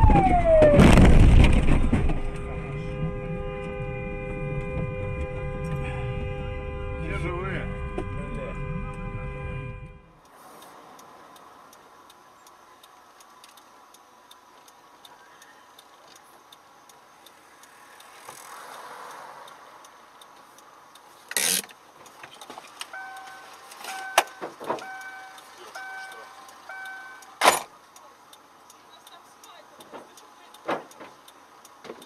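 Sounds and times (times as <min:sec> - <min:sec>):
faint steady hiss: 0:10.1 - 0:32.0
light regular ticking: 0:10.1 - 0:32.0
electronic beeps: 0:23.0 - 0:27.4.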